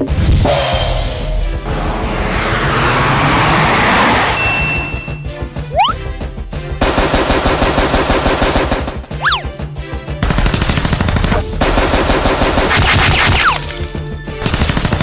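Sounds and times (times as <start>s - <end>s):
background music: 0.0s - 2.6s, 4.4s - 15.0s
machine-gun fire: 6.8s - 9.1s, 10.2s - 13.4s, 14.4s - 15.0s.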